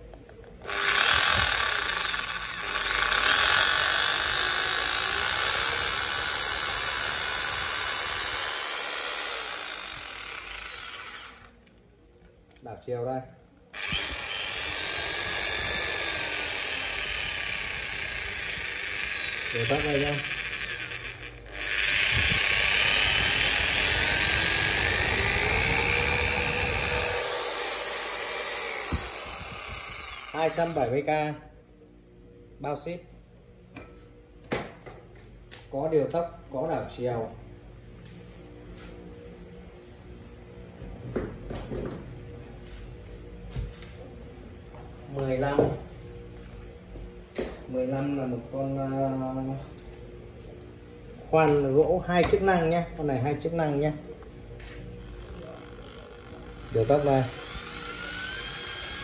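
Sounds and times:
electric drill motor: 0.5 - 11.8, 13.7 - 31.0, 54.6 - 59.0.

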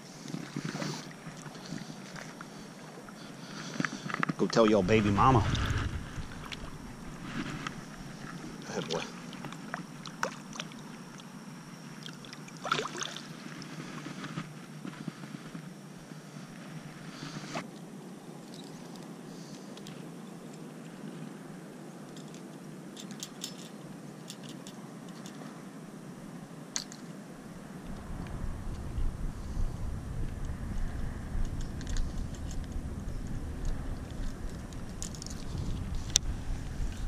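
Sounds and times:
low background hiss: 0.0 - 37.0
shallow water splashing: 4.5 - 11.0, 11.9 - 14.1.

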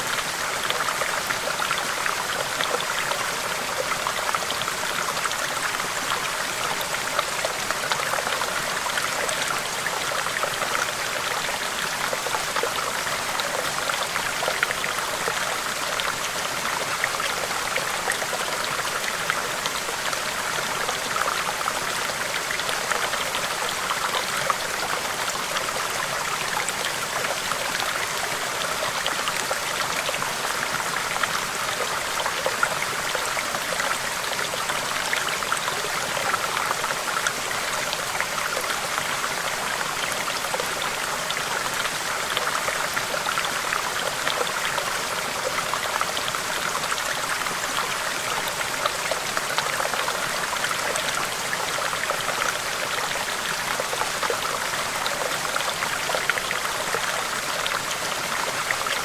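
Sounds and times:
stream babbling over rocks: 0.0 - 59.0.

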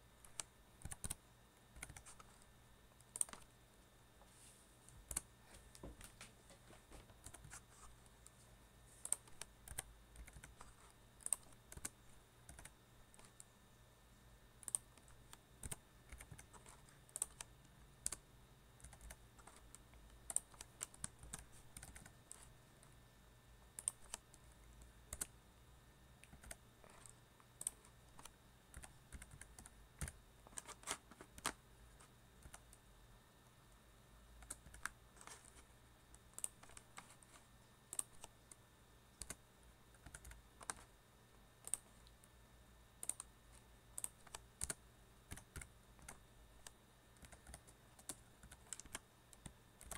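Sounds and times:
computer keyboard typing: 0.2 - 2.4, 3.0 - 3.5, 4.9 - 5.3, 7.1 - 7.9, 9.0 - 13.5, 14.6 - 18.2, 18.8 - 22.5, 23.7 - 25.4, 26.2 - 31.6, 32.4 - 32.8, 34.4 - 38.6, 39.2 - 40.9, 41.6 - 42.2, 43.0 - 49.9.

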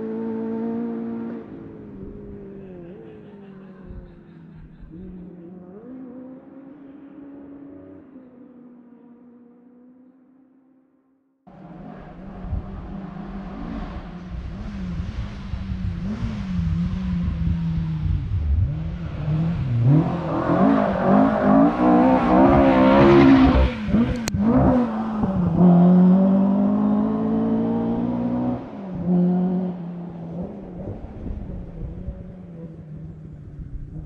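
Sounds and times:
rally car engine passing: 0.0 - 9.9, 11.5 - 34.0.

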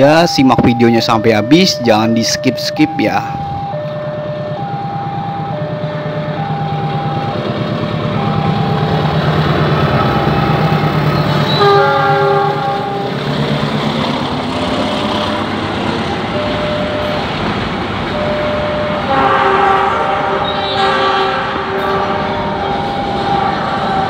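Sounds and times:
two-note crossing alarm: 0.0 - 13.1, 14.6 - 19.8, 20.4 - 24.0
locomotive engine droning: 0.0 - 24.0
train horn blast: 11.2 - 13.1, 19.0 - 24.0.

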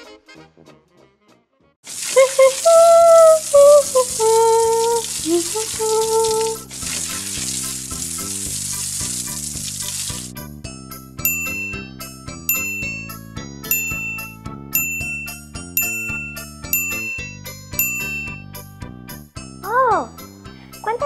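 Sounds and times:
water pouring from watering can: 1.9 - 10.3
cheerful background music: 2.4 - 21.0
bell-like notes: 11.2 - 18.7.

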